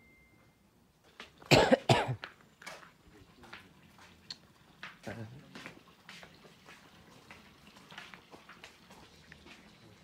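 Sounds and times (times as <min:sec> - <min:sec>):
person coughing: 0:01.5 - 0:02.2.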